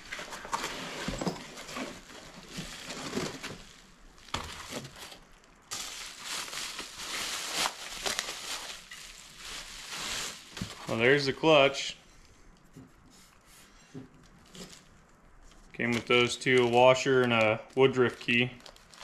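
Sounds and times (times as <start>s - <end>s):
plastic bag crinkling: 1.5s - 11.5s, 14.3s - 19.0s.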